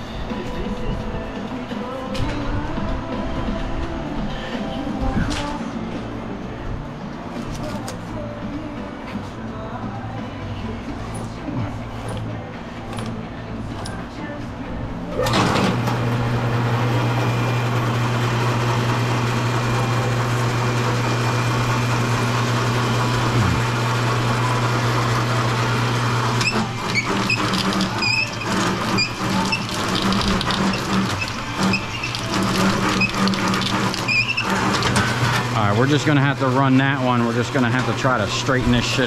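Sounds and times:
electric motor humming: 15.2s - 36.0s.

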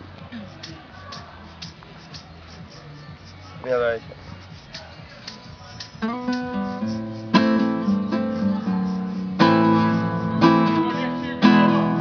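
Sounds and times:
acoustic guitar strumming chords: 6.0s - 12.0s.

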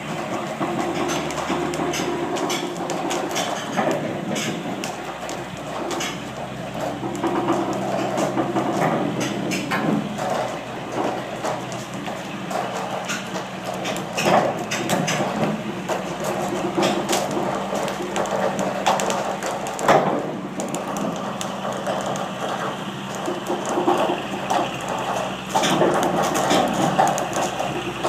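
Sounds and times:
steel wheels rolling on rails: 0.0s - 28.0s
clicks knocks and creaks: 6.9s - 22.3s.

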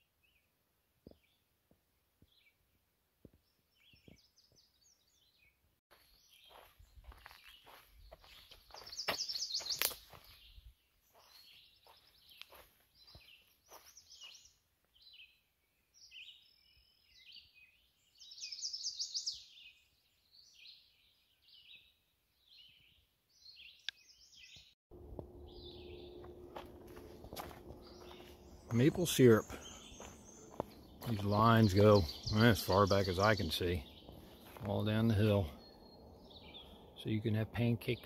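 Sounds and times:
songbirds singing: 0.0s - 1.6s, 2.2s - 38.0s
low hum: 24.9s - 31.2s.

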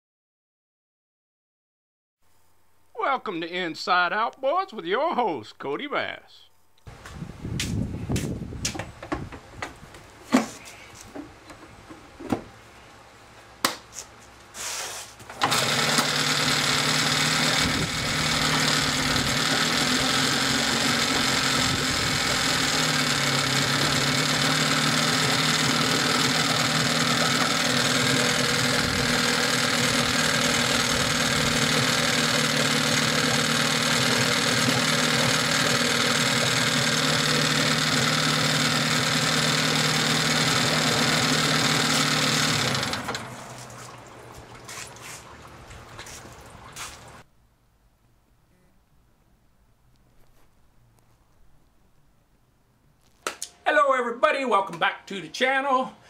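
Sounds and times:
outboard engine running: 15.5s - 47.2s.

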